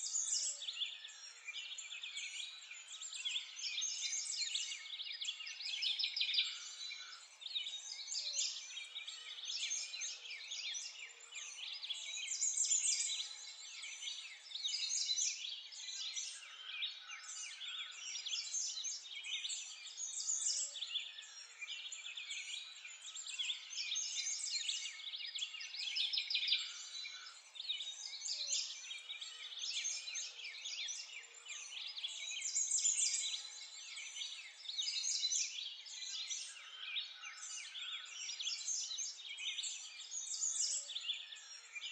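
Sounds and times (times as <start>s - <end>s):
small birds chirping and twittering: 0.0s - 41.9s.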